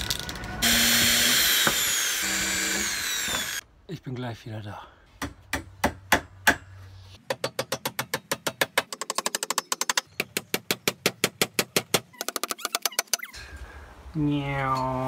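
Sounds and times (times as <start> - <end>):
hammer blows driving nails: 0.6 - 3.6.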